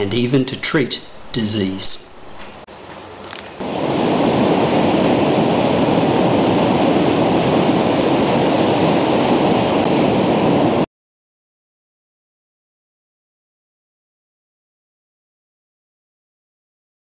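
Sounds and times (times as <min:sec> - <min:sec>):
ocean waves breaking: 0:03.1 - 0:10.9.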